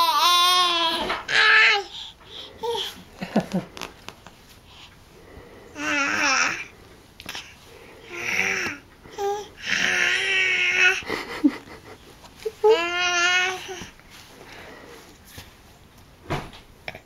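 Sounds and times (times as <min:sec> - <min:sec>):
babies babbling: 0:05.8 - 0:06.7, 0:07.3 - 0:11.0.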